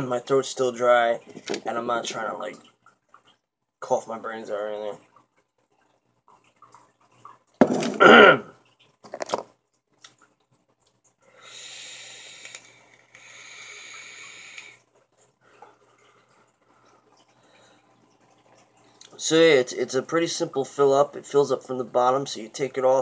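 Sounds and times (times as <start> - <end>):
vapor exhale: 11.4 - 14.8.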